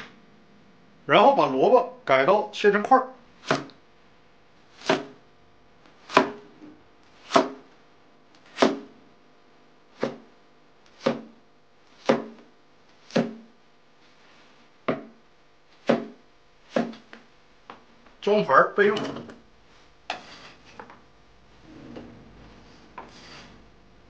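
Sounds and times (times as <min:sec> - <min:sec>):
cleaver chopping on cutting board: 0:03.4 - 0:03.8, 0:04.8 - 0:05.2, 0:06.0 - 0:06.5, 0:07.2 - 0:07.7, 0:08.5 - 0:09.0, 0:10.0 - 0:10.3, 0:10.9 - 0:11.4, 0:12.0 - 0:12.5, 0:13.1 - 0:13.5, 0:14.9 - 0:15.2, 0:15.8 - 0:17.1.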